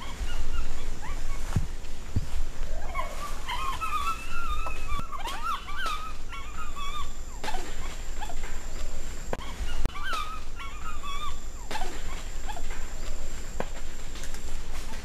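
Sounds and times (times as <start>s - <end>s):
eagle whining cries: 0.0s - 1.7s, 2.6s - 8.4s, 9.4s - 12.8s.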